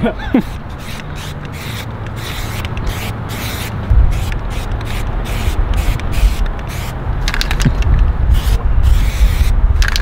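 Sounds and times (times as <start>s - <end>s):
steady low rumble: 0.0s - 10.0s
spray paint can hissing: 0.4s - 10.0s
sharp clicks: 7.3s - 8.1s, 9.8s - 10.0s.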